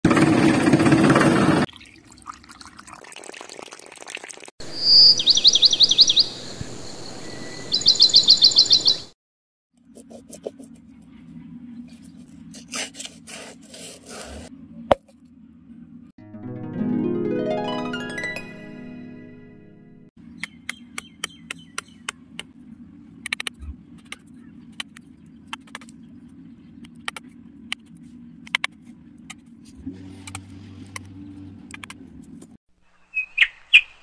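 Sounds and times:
bird chirping trills: 4.6 - 9.1, 20.2 - 22.1, 32.9 - 34.0
low steady hum: 9.9 - 16.1.

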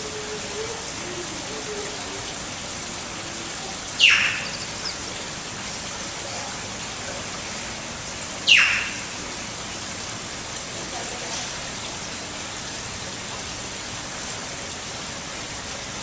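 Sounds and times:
shrill animal calls: 8.5 - 9.0.

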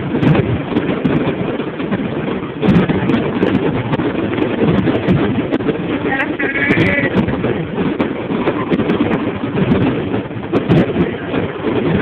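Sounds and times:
fireworks rumbling: 0.0 - 12.0.

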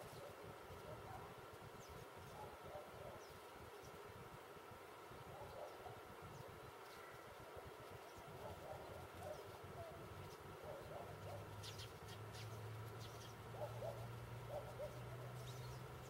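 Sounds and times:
birds cooing: 5.3 - 16.0.

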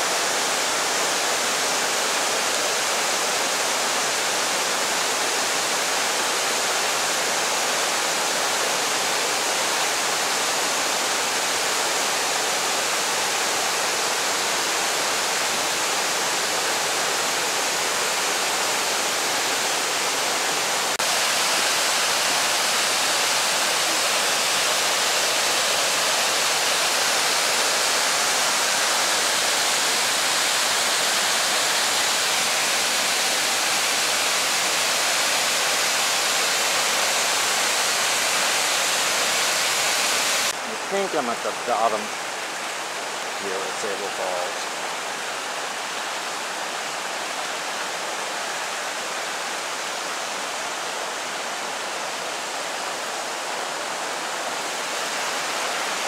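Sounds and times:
waterfall roaring: 0.0 - 56.0.

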